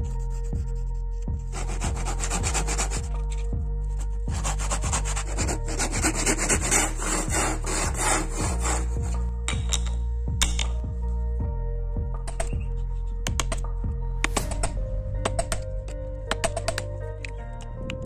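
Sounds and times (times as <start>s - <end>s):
hand saw cutting wood: 1.5s - 3.0s, 4.3s - 9.2s
sharp clicks: 13.3s - 18.0s.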